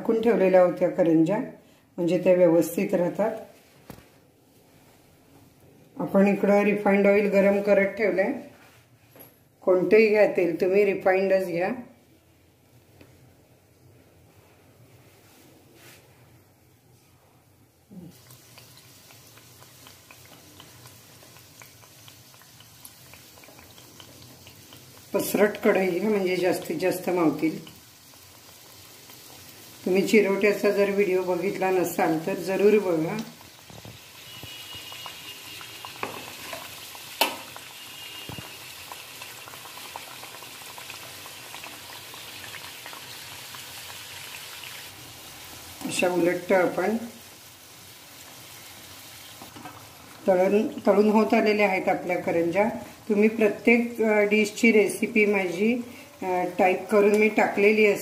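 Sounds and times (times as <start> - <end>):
pastries sizzling in hot oil: 17.8 - 58.0.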